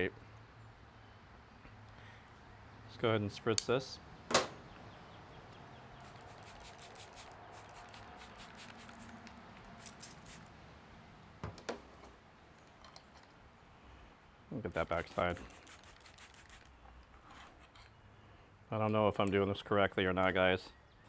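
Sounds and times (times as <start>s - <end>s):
spray bottle spritzing: 6.0s - 10.5s, 14.8s - 16.7s.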